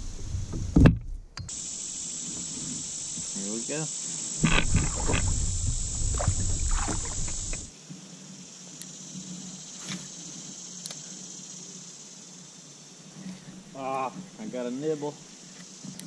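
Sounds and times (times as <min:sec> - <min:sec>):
insects droning: 0:00.0 - 0:16.0
kayak knocking and scraping: 0:00.2 - 0:01.6, 0:04.4 - 0:07.7.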